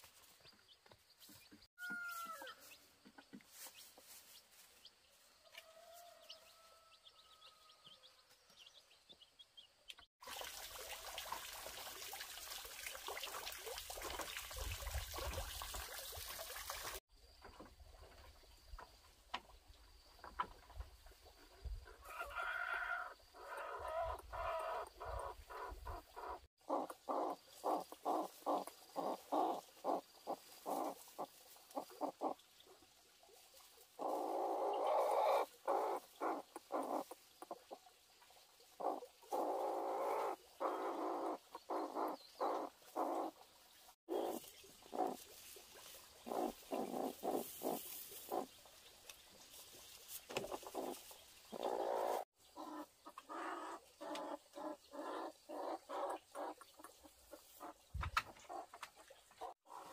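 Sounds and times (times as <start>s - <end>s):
chickens clucking: 22.1s - 32.4s, 34.0s - 37.8s, 38.8s - 43.3s, 44.1s - 59.9s.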